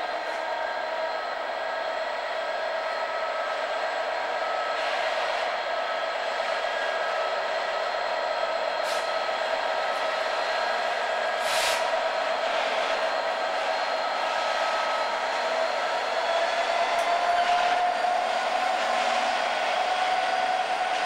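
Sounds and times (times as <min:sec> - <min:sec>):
diesel locomotive engine drone: 0:00.0 - 0:21.0
brief hisses: 0:11.4 - 0:11.9.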